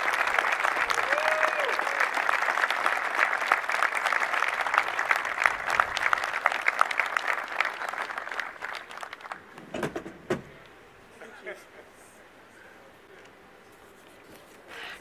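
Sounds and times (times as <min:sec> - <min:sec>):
crowd applauding: 0:00.0 - 0:09.6.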